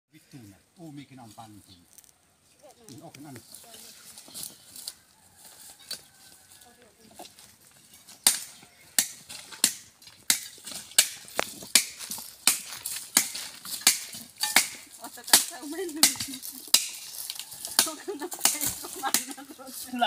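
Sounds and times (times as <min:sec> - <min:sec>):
hand tools chopping roots: 0:08.1 - 0:19.7.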